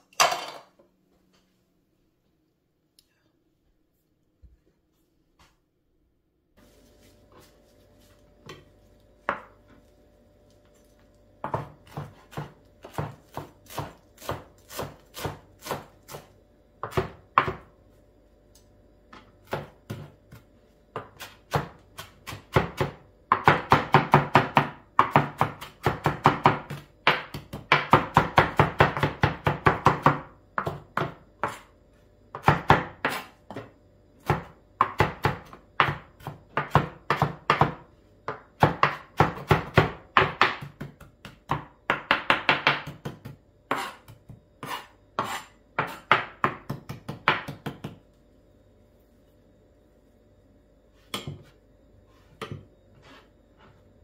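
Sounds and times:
knife chopping on plastic board: 0:08.4 - 0:09.6, 0:11.4 - 0:17.7, 0:19.1 - 0:31.7, 0:32.3 - 0:48.0.

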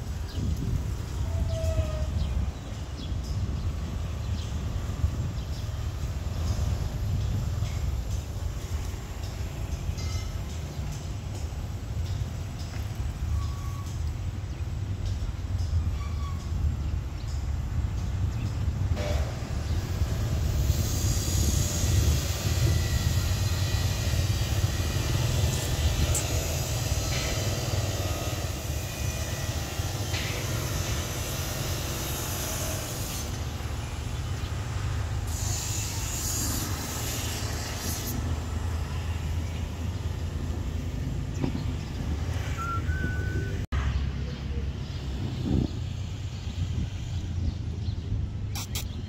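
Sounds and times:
low rumble of street traffic: 0:00.0 - 0:49.0
brief hissing: 0:48.5 - 0:49.0.

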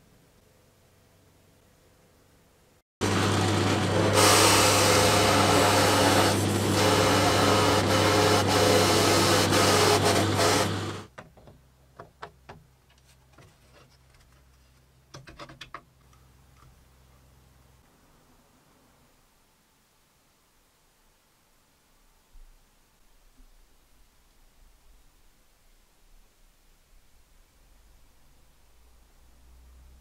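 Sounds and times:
drill press boring into wood: 0:03.0 - 0:11.1.

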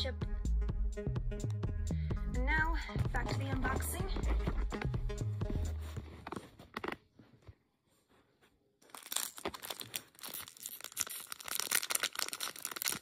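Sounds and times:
background music: 0:00.0 - 0:06.2
foil wrapper tearing and crinkling: 0:08.8 - 0:13.0.

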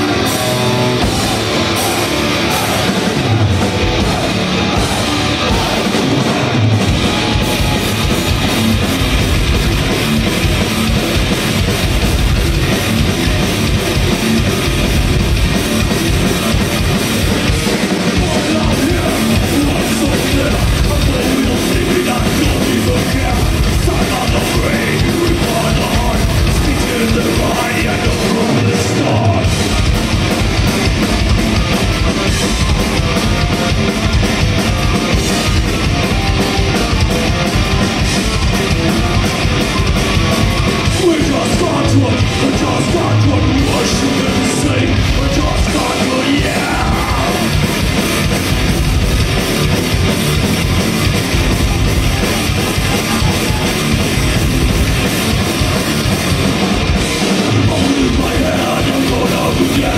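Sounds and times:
bass guitar: 0:00.0 - 0:59.9
distorted electric guitars: 0:00.0 - 0:59.9
pounding drum kit: 0:00.0 - 0:59.9
person yelling vocals: 0:41.0 - 0:47.5.

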